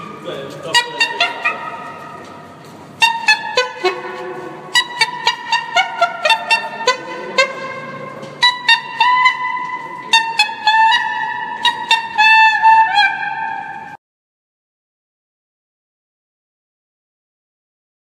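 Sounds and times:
saxophones improvising free jazz: 0.0s - 14.0s.

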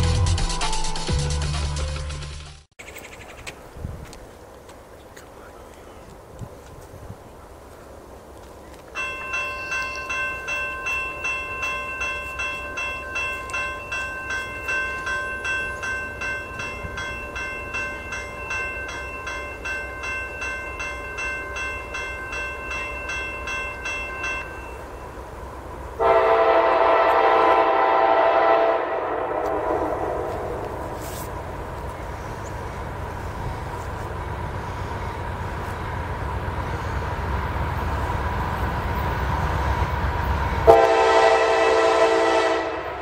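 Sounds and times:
railroad crossing bell ringing: 8.9s - 25.4s, 36.3s - 43.0s
locomotive horn chord: 26.0s - 31.3s, 40.6s - 43.0s.

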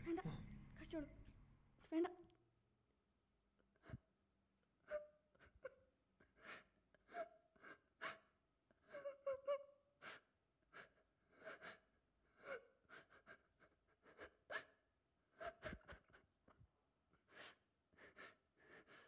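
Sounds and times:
woman sobbing: 4.8s - 9.8s, 12.4s - 16.6s.

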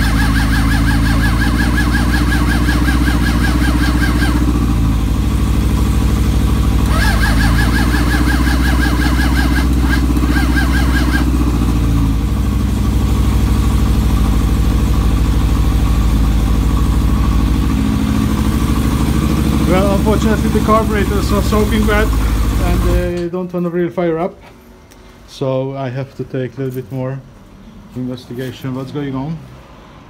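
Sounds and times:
motorcycle starter motor cranking: 0.0s - 12.2s, 18.2s - 23.2s
motorcycle engine idling: 0.0s - 23.2s.

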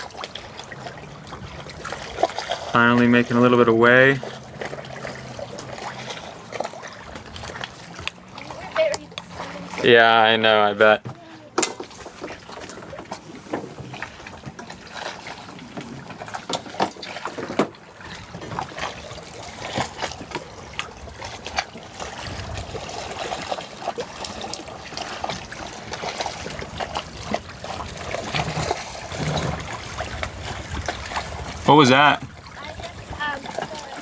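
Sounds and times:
small splashes and knocks: 0.0s - 9.9s, 10.8s - 34.0s
water lapping along boat hull: 0.0s - 34.0s.

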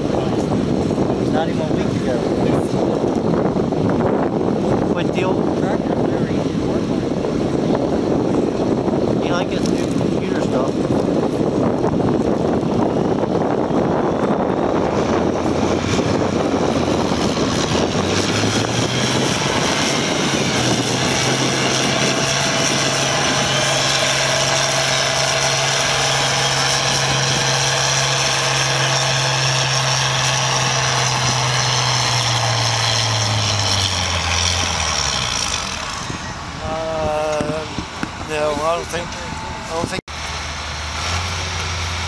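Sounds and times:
high turbo whine: 0.0s - 42.0s
tractor engine under load: 9.2s - 42.0s.

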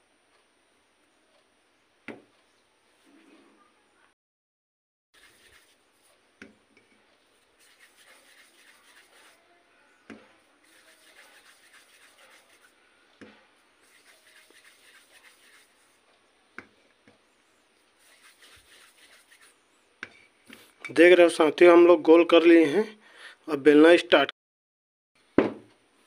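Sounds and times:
dough rubbing between palms: 5.2s - 6.3s, 7.1s - 16.0s, 17.6s - 19.7s.

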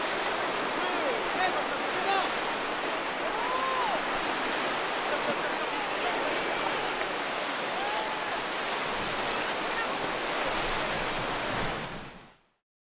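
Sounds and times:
sea waves washing on beach: 0.0s - 12.5s.

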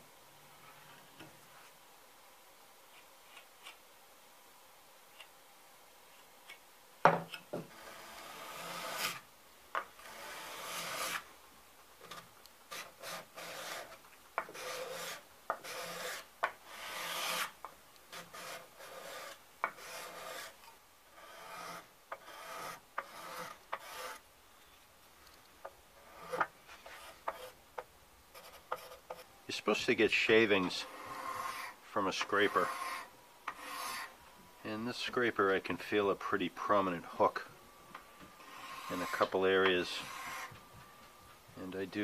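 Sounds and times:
card scraper rasping across wood: 7.7s - 9.2s, 10.0s - 11.2s, 12.7s - 20.6s, 21.2s - 24.2s, 26.0s - 27.6s, 30.8s - 34.1s, 38.4s - 40.5s.

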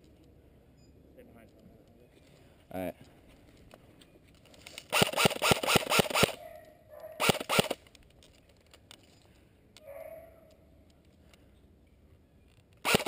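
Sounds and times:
dog barking: 6.4s - 7.3s, 9.8s - 10.5s.

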